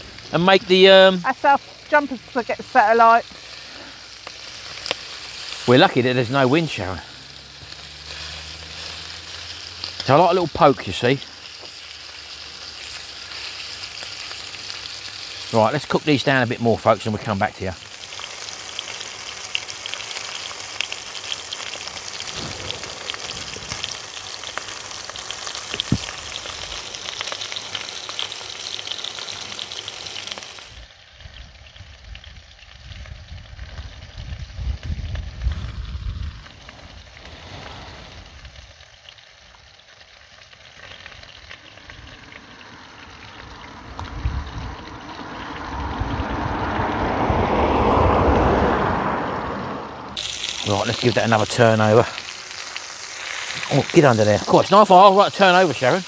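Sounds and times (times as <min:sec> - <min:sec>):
lamb chops sizzling in a frying pan: 0:00.0 - 0:47.0, 0:50.2 - 0:56.0
vehicle on a wet road: 0:05.6 - 0:11.3, 0:42.1 - 0:51.2
low rumble: 0:41.9 - 0:50.2.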